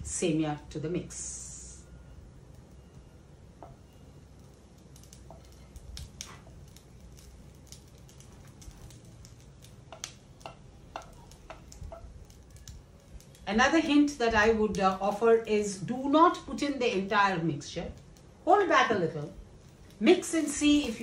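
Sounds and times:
low steady hum: 0.0s - 21.0s
wooden spatula scraping and tapping: 5.1s - 6.9s, 8.1s - 13.4s.

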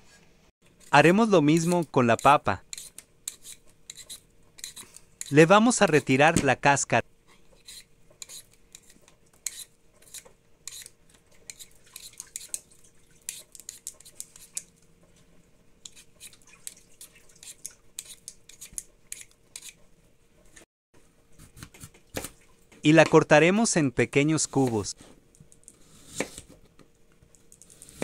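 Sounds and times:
peeler scraping potato: 0.7s - 6.2s, 7.5s - 14.7s, 15.8s - 19.8s, 25.7s - 26.6s, 27.6s - 28.0s.

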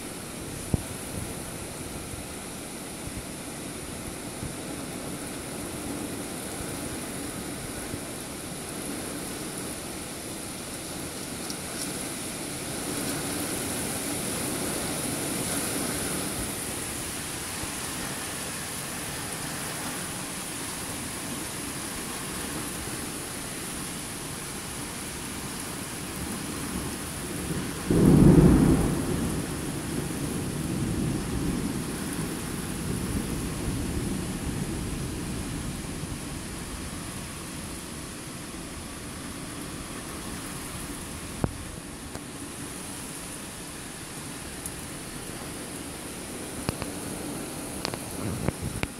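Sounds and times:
heavy rain: 0.0s - 48.9s
thunder clap and rumbling: 27.8s - 37.0s.

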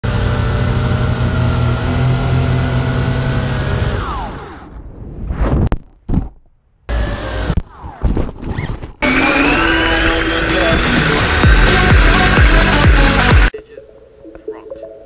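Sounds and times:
quadcopter motors whining: 0.0s - 4.8s, 6.9s - 7.9s.

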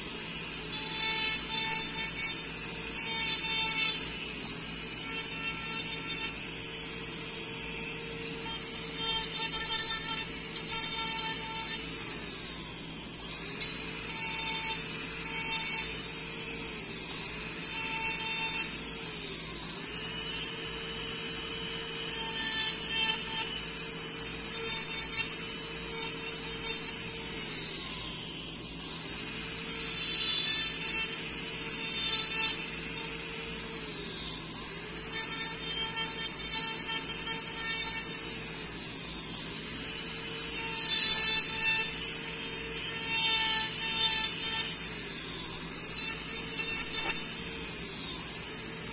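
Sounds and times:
bur grinding acrylic: 0.0s - 12.2s, 13.2s - 19.1s, 19.7s - 48.9s
dental handpiece whining: 0.0s - 48.9s.

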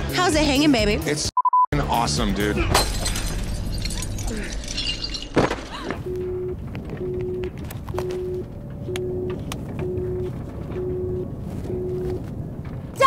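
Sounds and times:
phone tone beeping: 1.4s - 1.7s, 6.1s - 12.2s
low rumble: 6.0s - 13.0s.

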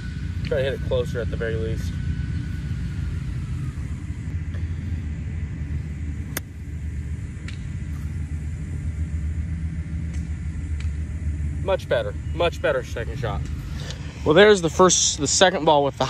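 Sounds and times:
low rumble: 0.0s - 16.0s
golf club striking ball: 6.2s - 6.7s, 7.3s - 8.2s.

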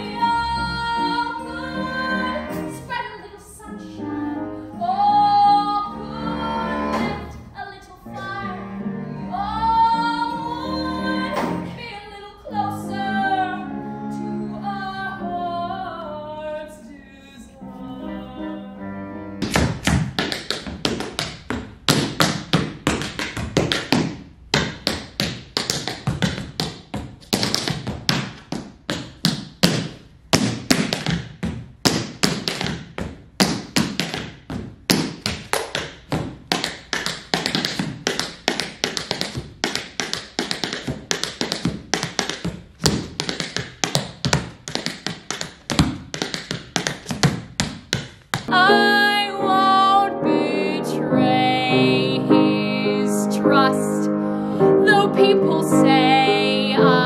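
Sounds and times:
singing with accompaniment: 0.0s - 19.4s, 48.5s - 57.0s
tap shoes on hard floor: 19.4s - 48.5s.

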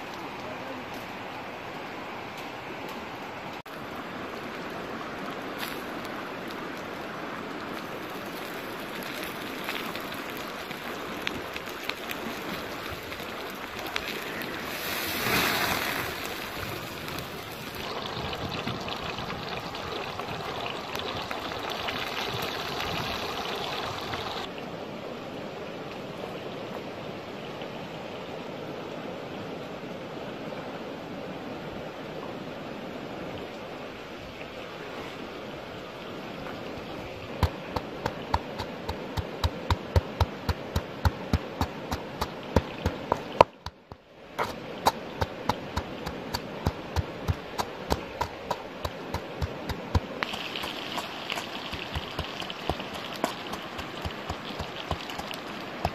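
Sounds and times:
stream running over rocks: 0.0s - 55.9s
hiss: 14.0s - 17.2s.

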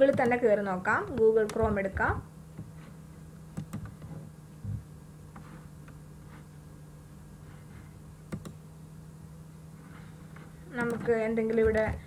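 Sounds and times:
computer mouse clicks: 0.0s - 0.4s, 3.6s - 4.1s, 8.3s - 8.6s
low electrical hum: 0.0s - 12.0s.

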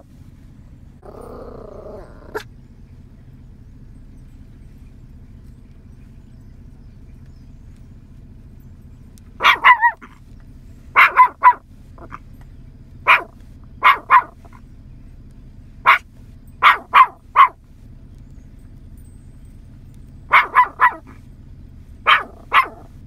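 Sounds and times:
small dog yapping: 1.0s - 2.5s, 9.4s - 12.3s, 13.0s - 14.6s, 15.8s - 17.6s, 20.3s - 21.3s, 22.0s - 23.0s.

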